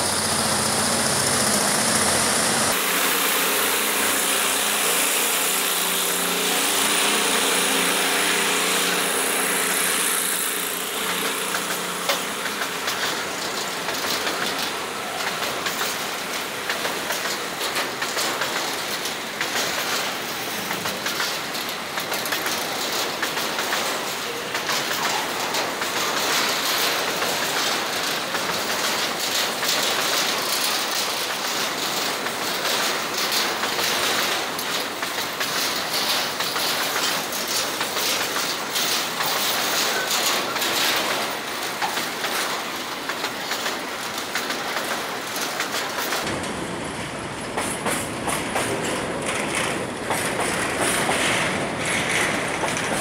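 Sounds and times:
engine drone: 0.0s - 14.7s
train wheels clattering on rails: 0.0s - 53.0s.

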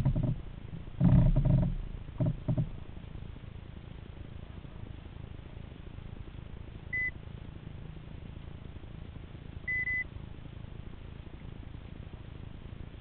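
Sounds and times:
steady low rumble: 0.0s - 13.0s
high electronic beeps: 9.7s - 10.0s.

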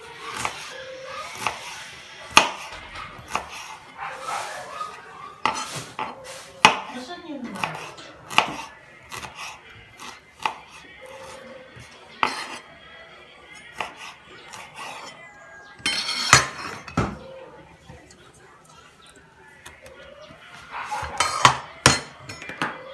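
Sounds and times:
knife scraping pieces together: 0.2s - 6.9s, 7.6s - 12.7s, 13.5s - 15.2s, 15.8s - 16.9s, 20.9s - 22.4s.

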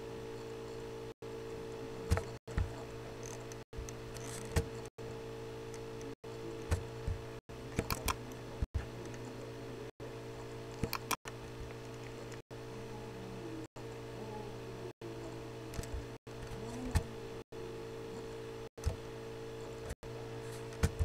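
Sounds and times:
steady low hum: 0.0s - 21.0s
computer mouse clicks: 7.8s - 8.2s, 10.8s - 11.2s.

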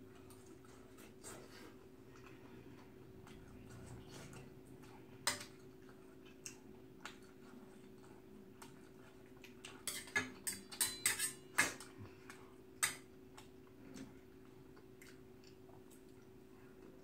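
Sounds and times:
faint steady hum: 0.0s - 17.0s
chopsticks clinking against bowls: 9.8s - 11.8s.

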